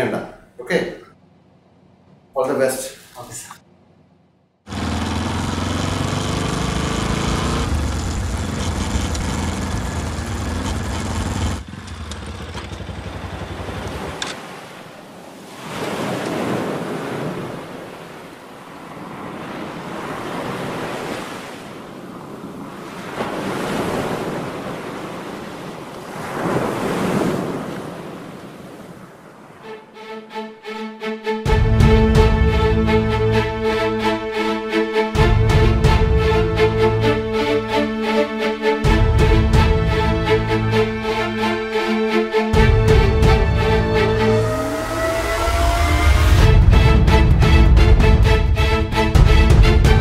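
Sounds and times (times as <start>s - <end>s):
motorcycle engine running: 4.7s - 14.3s
waves breaking on shore: 4.7s - 29.9s.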